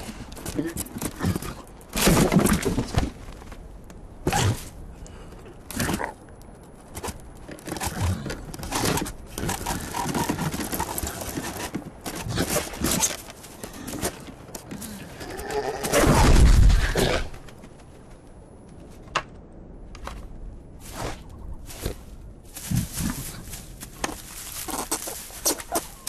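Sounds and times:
wood scraping and splintering: 0:07.0 - 0:15.0.

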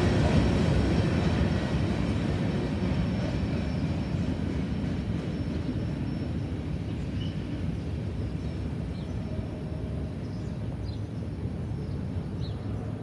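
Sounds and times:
train cars rumbling on track: 0:00.0 - 0:13.0
faint bird chirps: 0:05.3 - 0:07.6.

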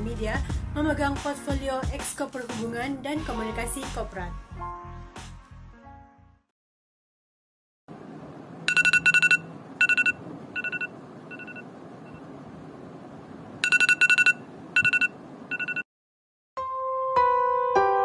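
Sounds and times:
smartphone beeping ringtone: 0:08.7 - 0:12.2, 0:13.6 - 0:15.9.

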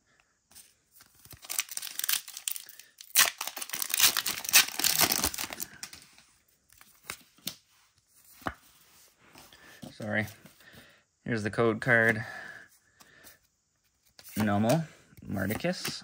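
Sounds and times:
foil wrapper tearing and crinkling: 0:01.0 - 0:06.0.

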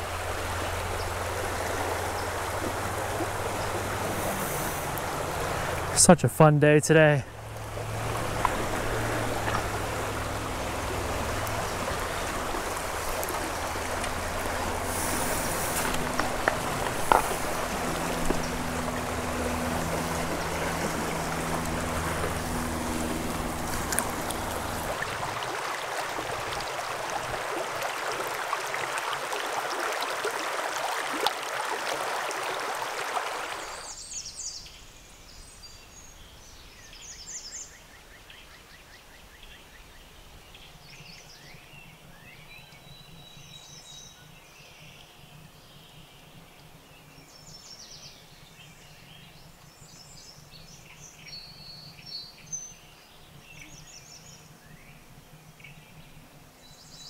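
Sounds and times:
birds calling: 0:00.0 - 0:25.8
rocky river rushing: 0:00.0 - 0:33.9
calm flowing water: 0:00.0 - 0:57.0.

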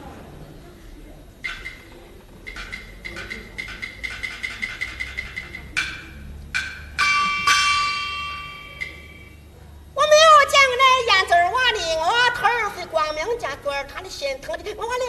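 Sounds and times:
sharp clapper strikes: 0:01.4 - 0:09.4
ringing metal stroke: 0:02.5 - 0:09.5.

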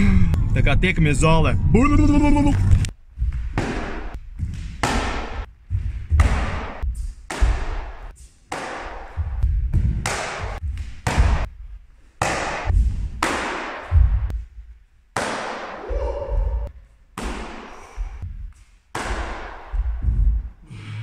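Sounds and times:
kicks slapping a kicking paddle: 0:03.2 - 0:11.6, 0:12.2 - 0:14.4, 0:15.2 - 0:15.8, 0:17.2 - 0:20.5.

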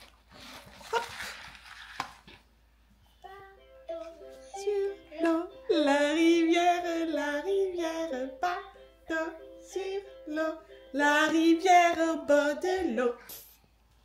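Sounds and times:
recorded song from sound book: 0:03.0 - 0:13.5
person singing: 0:03.2 - 0:13.6.

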